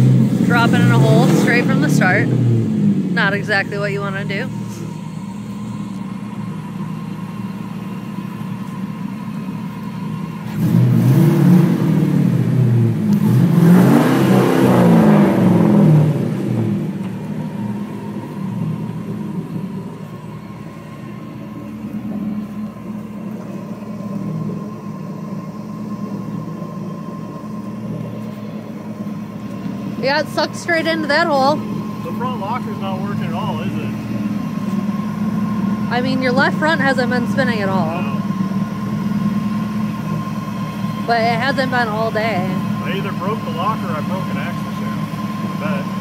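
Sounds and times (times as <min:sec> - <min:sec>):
truck engine revving hard: 0:00.0 - 0:05.0, 0:10.4 - 0:20.3, 0:29.3 - 0:46.0.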